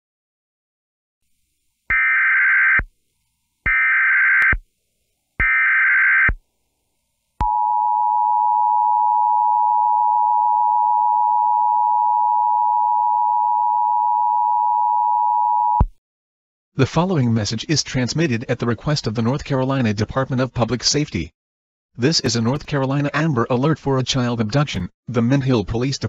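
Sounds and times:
screeching data tones: 0:01.9 - 0:02.9, 0:03.7 - 0:04.6, 0:05.4 - 0:06.4.

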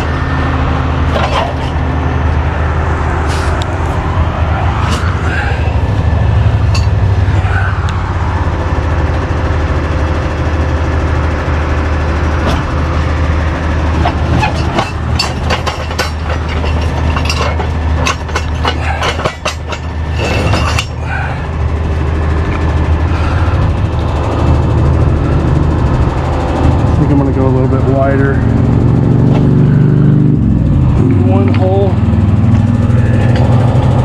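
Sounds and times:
truck engine idling: 0:00.0 - 0:34.0
metal parts clanking: 0:01.1 - 0:01.9, 0:06.6 - 0:07.1, 0:14.0 - 0:21.2.

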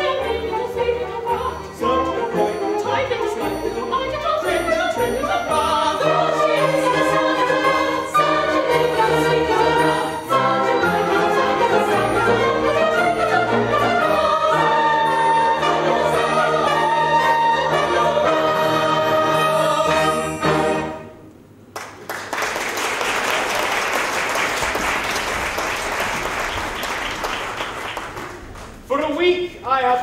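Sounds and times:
chorus singing: 0:00.0 - 0:21.2
orchestra playing: 0:00.0 - 0:21.5
audience applauding: 0:21.7 - 0:28.9.

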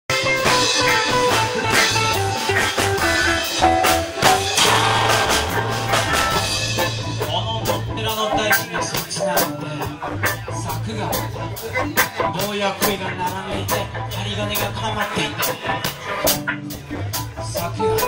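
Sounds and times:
live band playing: 0:00.1 - 0:18.0
repeating bass line: 0:00.7 - 0:09.1
drum hits: 0:03.0 - 0:08.2.

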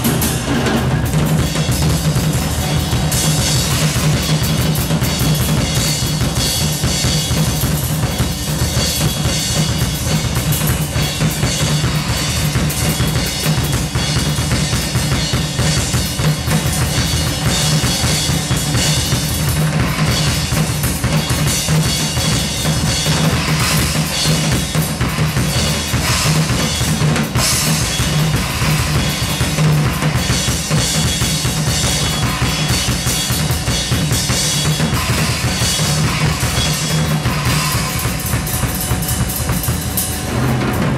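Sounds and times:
cymbal wash: 0:00.0 - 0:40.9
drum kit playing: 0:00.0 - 0:40.9.

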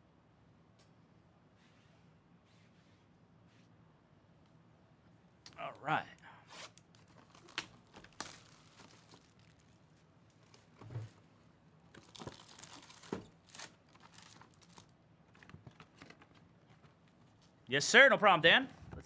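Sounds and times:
faint rustling and tearing: 0:06.5 - 0:10.8, 0:12.0 - 0:14.9.

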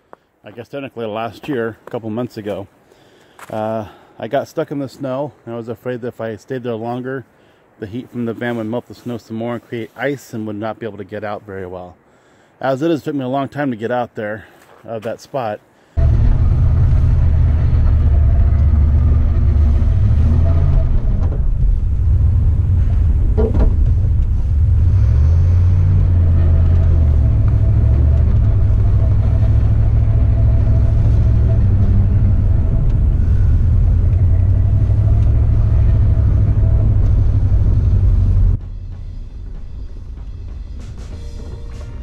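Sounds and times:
van engine and tyre rumble: 0:16.0 - 0:38.6.

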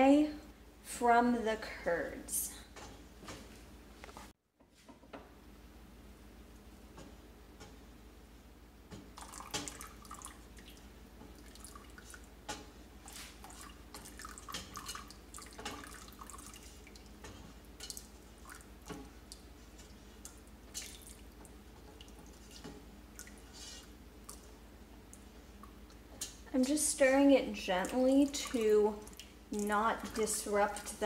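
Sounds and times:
liquid drips and splashes: 0:09.2 - 0:12.3, 0:13.0 - 0:24.5, 0:27.7 - 0:31.0.

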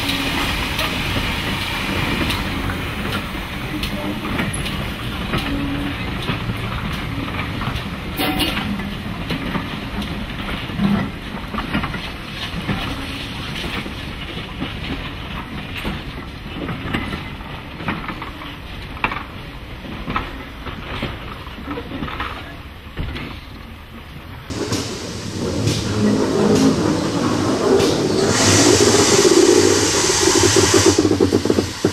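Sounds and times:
locomotive steam: 0:00.0 - 0:14.6, 0:24.5 - 0:31.9
train wheels clicking over rail joints: 0:00.0 - 0:23.6, 0:24.5 - 0:31.9.

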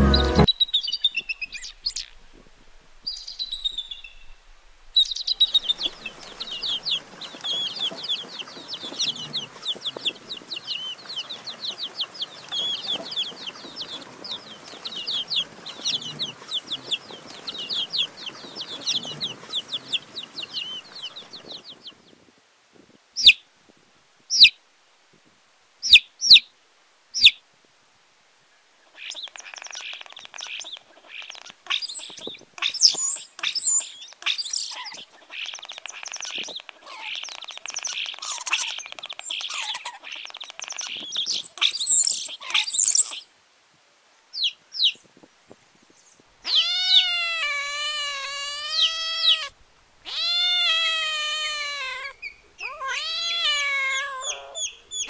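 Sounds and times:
small birds chirping: 0:00.0 - 0:02.4, 0:03.0 - 0:04.4, 0:05.0 - 0:22.2, 0:23.2 - 0:23.4, 0:24.3 - 0:24.6, 0:25.8 - 0:26.5, 0:27.2 - 0:27.4, 0:28.8 - 0:43.3, 0:44.3 - 0:55.0
short sharp bird calls: 0:46.4 - 0:55.0.

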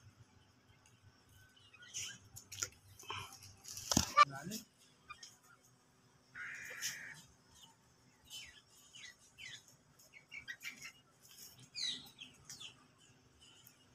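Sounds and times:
chicks peeping: 0:06.5 - 0:13.9.

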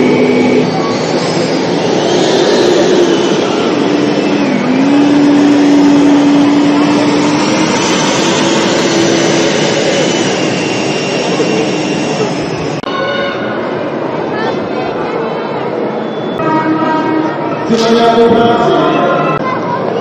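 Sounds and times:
mechanical drone: 0:00.0 - 0:14.3.

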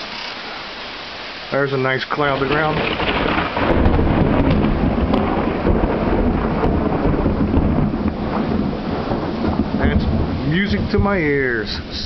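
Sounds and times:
falling rain: 0:00.0 - 0:12.0
low rumble of thunder: 0:02.4 - 0:12.0.

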